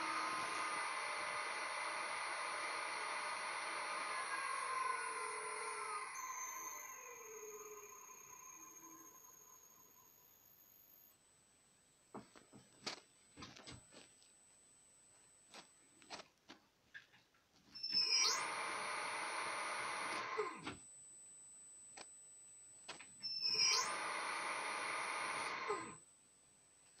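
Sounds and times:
electric motor whine: 0.0 - 11.1, 17.8 - 20.8, 23.2 - 26.0
faint high-pitched inverter whine: 0.0 - 27.0.

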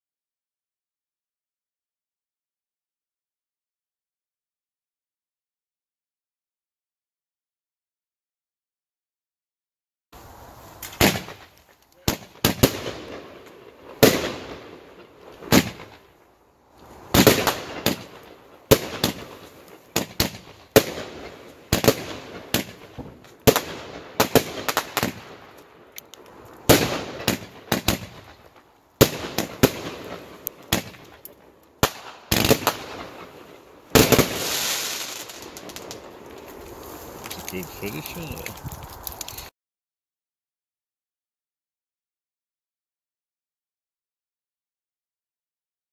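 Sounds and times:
firework launch thumps: 10.8 - 12.9.

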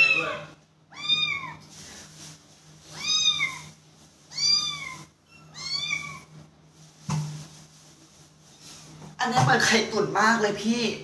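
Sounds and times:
kitten meowing: 0.0 - 1.6, 3.0 - 3.7, 4.3 - 6.3.

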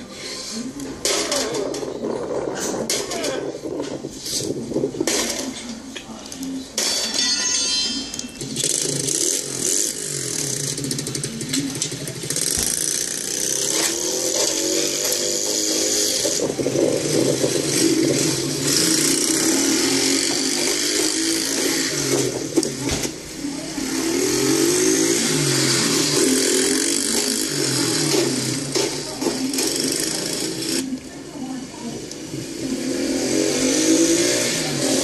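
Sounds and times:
mini-bike engine revving: 8.4 - 31.0, 32.2 - 35.0.

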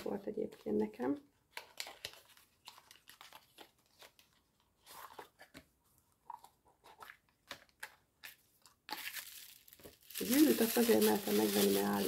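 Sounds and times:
jewellery packaging rustling: 6.2 - 12.0.

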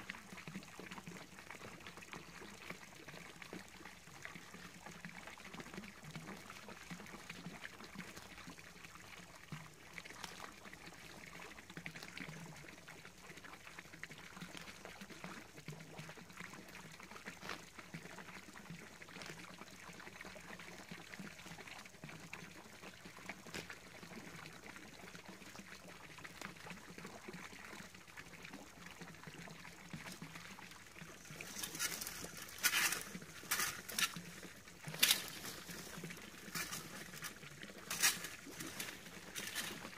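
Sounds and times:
fountain splashing and trickling: 0.0 - 39.9
rake scraping through leaves: 31.2 - 34.3, 34.9 - 39.9.

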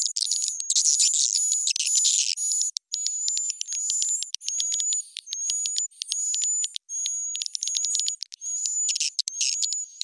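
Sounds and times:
high-pitched bird chirps and clicks: 0.0 - 10.0
thin whistle-like tone: 3.0 - 10.0.

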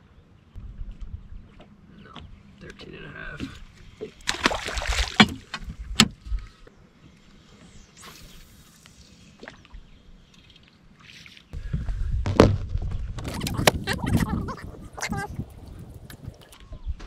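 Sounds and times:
low rumble: 0.6 - 2.6.

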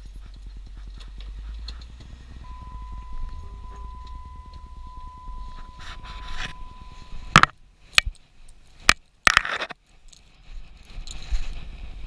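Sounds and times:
thin steady tone: 0.0 - 8.9
vehicle interior rumble: 0.0 - 9.8.

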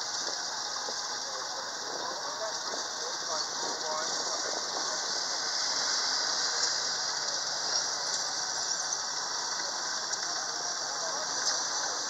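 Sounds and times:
tank engine rumble: 0.0 - 12.0.

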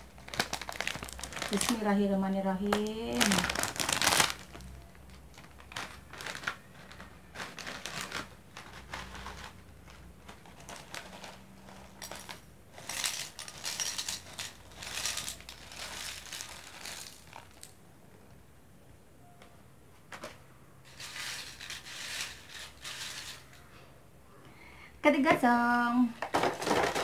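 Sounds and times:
plastic snack packet crinkling: 0.0 - 17.8
crackers poured into glass bowl: 10.6 - 17.7, 20.9 - 23.4.

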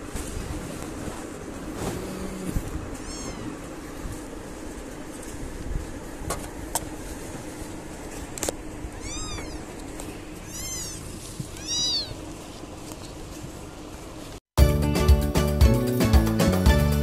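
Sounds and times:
kittens mewing: 2.0 - 3.7, 8.9 - 12.3.

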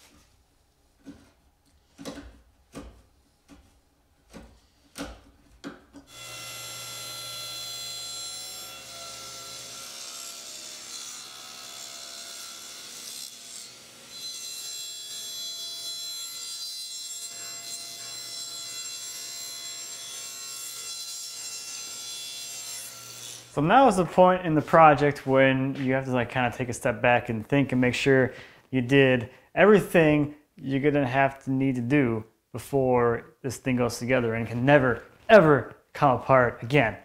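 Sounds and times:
chisel paring wood: 1.9 - 3.7, 4.3 - 6.1
table saw cutting wood: 6.0 - 23.8.

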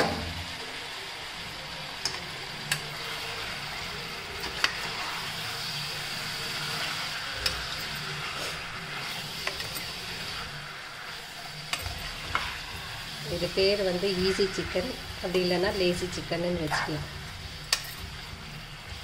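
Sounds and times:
chicken sizzling in hot oil: 0.0 - 19.0
metal spoon clicking against pan: 17.7 - 18.0.

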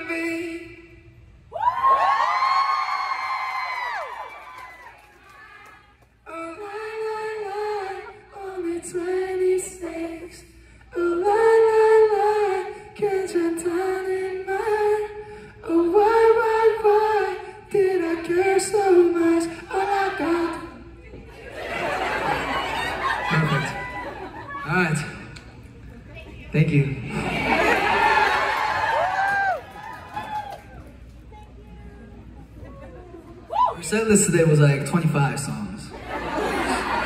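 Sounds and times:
man singing a cappella: 6.2 - 20.8.

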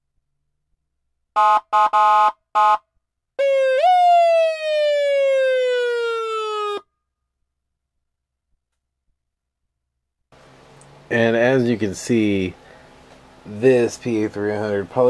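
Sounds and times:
buzzy horn blasts: 1.4 - 2.8
siren falling in pitch: 3.4 - 6.9.

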